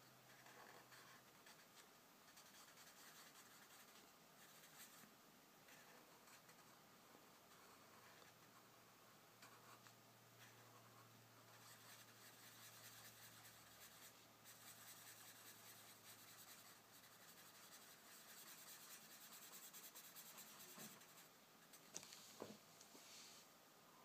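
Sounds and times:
marker scratching on paper: 0:00.3 - 0:05.0, 0:07.5 - 0:08.6, 0:09.4 - 0:21.9.

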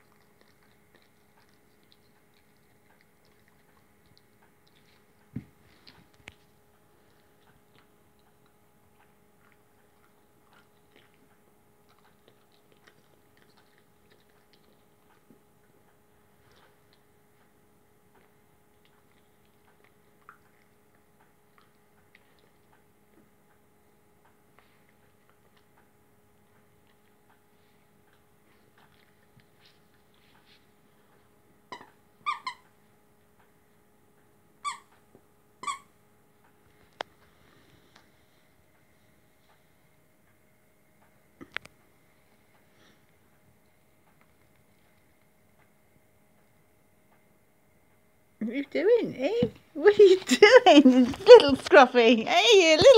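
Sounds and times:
dog chewing wetly: 0:00.0 - 0:32.7
faint steady hum: 0:00.0 - 0:52.9
dog toy squeaker squeaking: 0:31.7 - 0:32.6, 0:34.6 - 0:34.9, 0:35.6 - 0:35.9.

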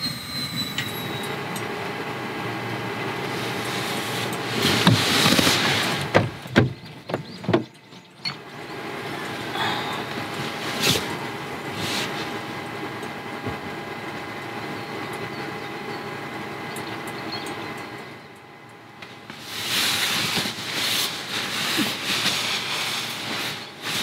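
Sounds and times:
padded fabric rustling: 0:03.3 - 0:06.2, 0:19.3 - 0:24.0.

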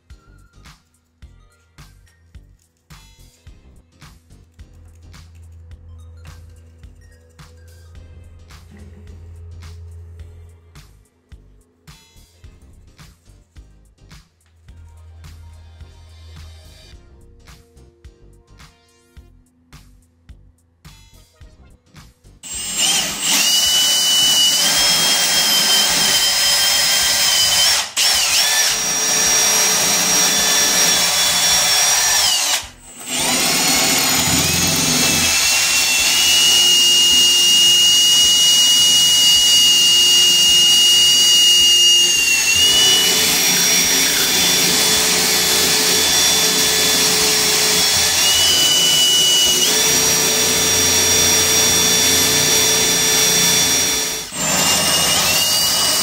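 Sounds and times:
cordless drill whining into tile: 0:22.4 - 0:56.0.

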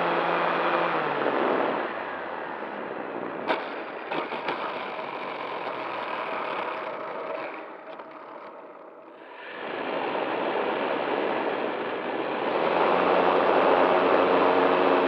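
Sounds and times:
model plane motor and propeller: 0:00.0 - 0:15.0
wheels rolling on asphalt: 0:02.5 - 0:09.3.

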